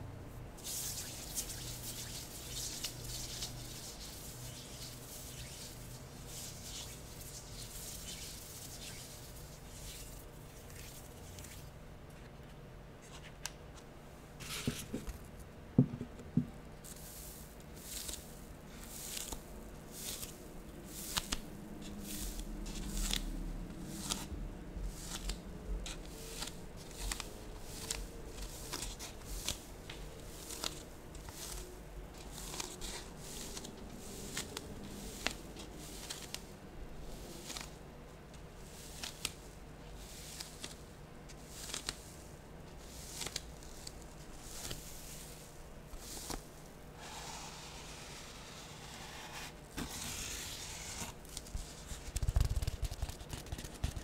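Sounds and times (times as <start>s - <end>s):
lotion rubbed on hands: 0.6s - 11.1s
styrofoam squeezed and rubbed: 0.6s - 11.2s.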